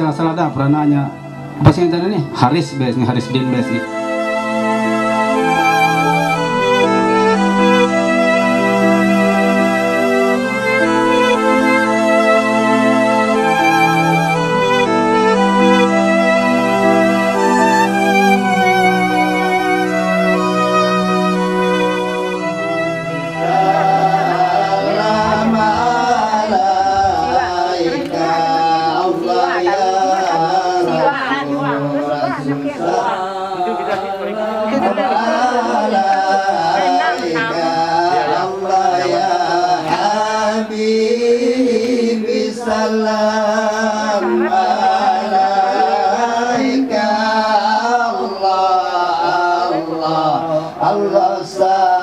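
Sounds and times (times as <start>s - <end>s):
person singing ornamented melody: 23.0s - 52.0s.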